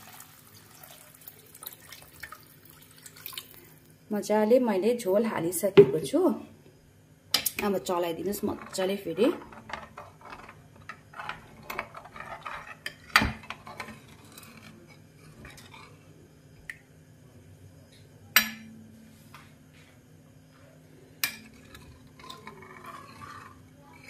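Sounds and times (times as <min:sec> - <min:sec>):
faint steady hum: 0:00.0 - 0:24.0
metal ladle scraping a pan: 0:08.3 - 0:16.0, 0:21.2 - 0:24.0.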